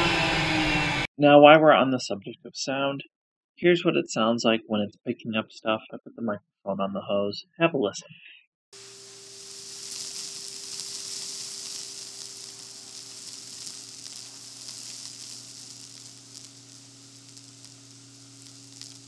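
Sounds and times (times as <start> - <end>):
debris ticking in vacuum hose: 8.8 - 19.0
vacuum hose air hiss: 8.8 - 19.0.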